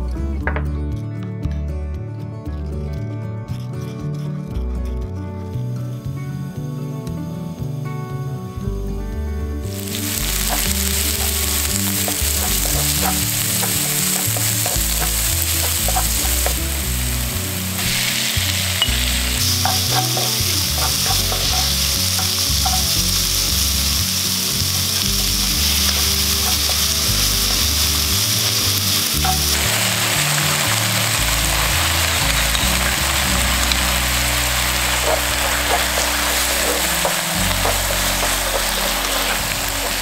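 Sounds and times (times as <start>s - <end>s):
food sizzling in a wok: 9.7s - 40.0s.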